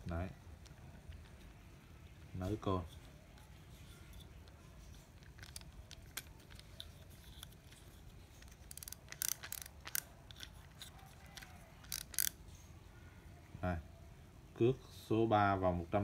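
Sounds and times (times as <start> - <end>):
fishing reel clicking: 8.4 - 12.4.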